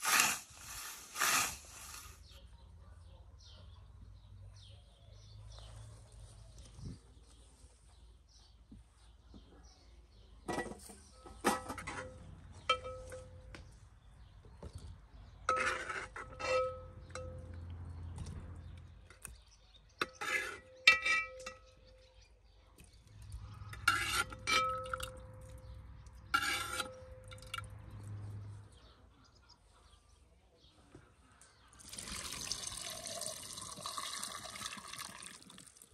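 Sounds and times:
metal ladle clinking against pot: 20.0 - 22.0, 23.7 - 25.6, 26.2 - 27.7.

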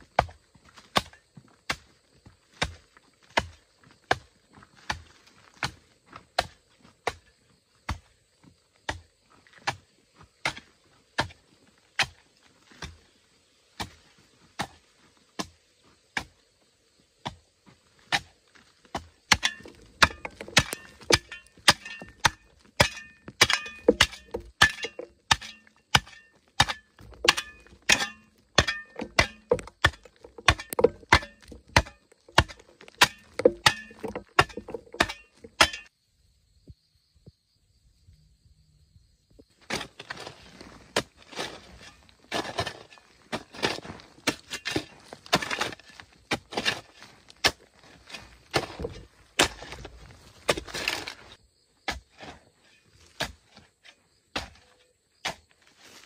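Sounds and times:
hoe chopping into clay: 19.0 - 35.9.

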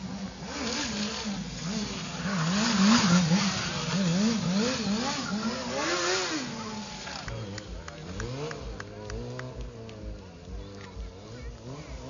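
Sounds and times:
motorcycle engine revving: 0.0 - 12.0.

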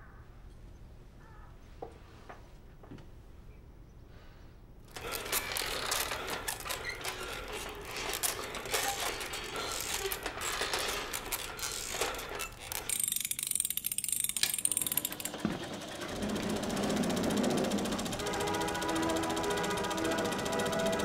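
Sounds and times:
small mechanism clicking and rustling: 4.9 - 15.5
fast mechanical clatter: 4.9 - 21.0.

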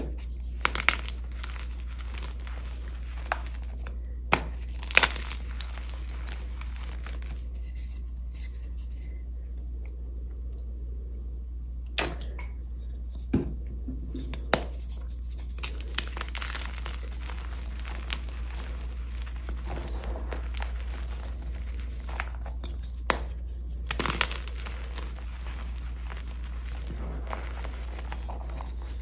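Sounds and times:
chalk pieces snapping: 0.0 - 7.4, 14.4 - 29.0
chalk crumbling and crunching: 0.0 - 9.2, 14.2 - 29.0.

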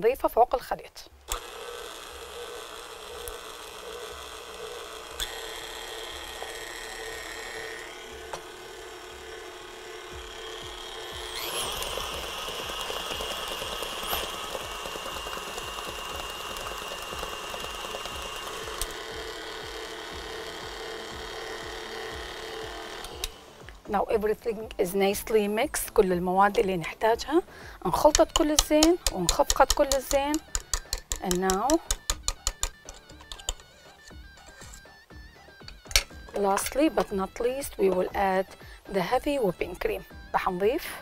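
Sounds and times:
stand mixer motor whine: 1.3 - 23.9, 28.1 - 34.8, 35.6 - 38.8.

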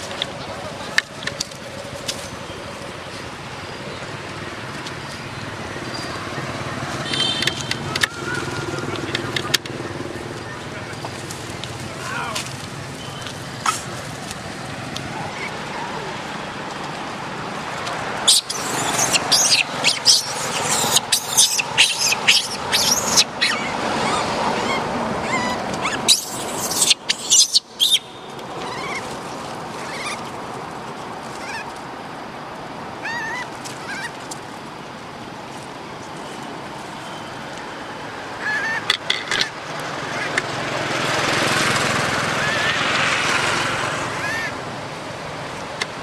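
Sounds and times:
monkeys shrieking: 18.2 - 29.1, 29.8 - 30.3, 31.4 - 31.7, 33.0 - 34.2, 38.4 - 38.9, 42.3 - 42.9, 44.1 - 44.6.

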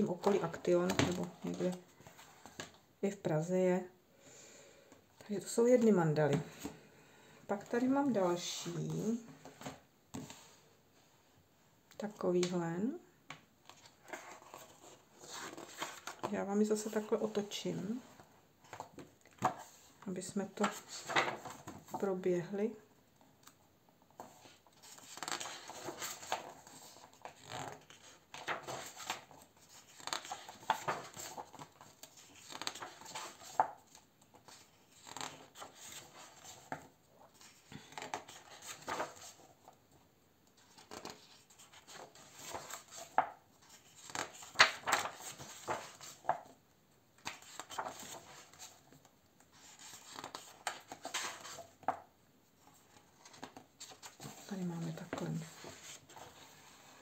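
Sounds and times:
paper pages turning: 13.6 - 17.5, 20.6 - 22.0, 24.2 - 39.8, 40.6 - 46.5, 47.2 - 52.0, 52.6 - 57.0.

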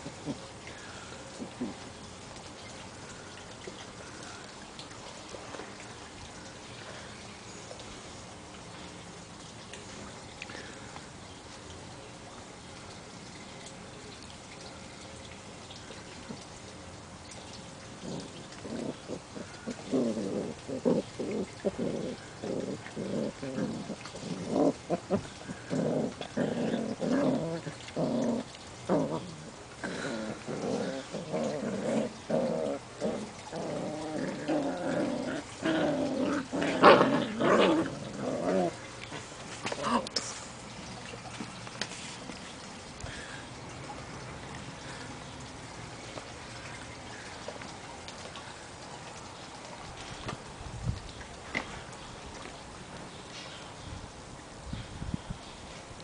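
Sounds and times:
puppies play-growling: 0.0 - 2.0, 17.8 - 43.3.

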